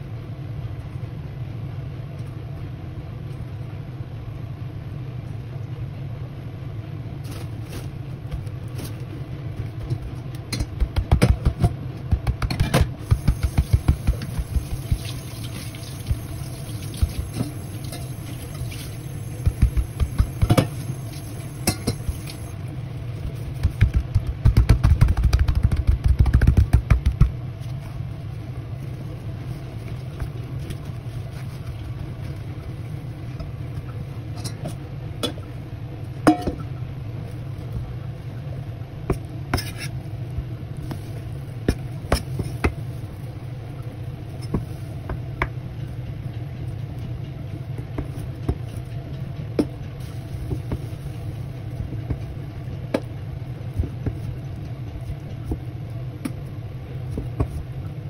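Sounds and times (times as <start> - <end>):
steady low hum: 0.0 - 58.0
paper towels rustling and crinkling: 7.2 - 9.7, 27.5 - 34.1, 40.8 - 45.0, 50.0 - 52.5.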